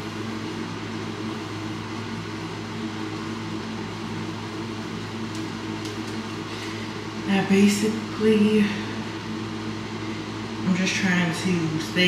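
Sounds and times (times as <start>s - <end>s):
ventilation fan humming: 0.0s - 12.0s.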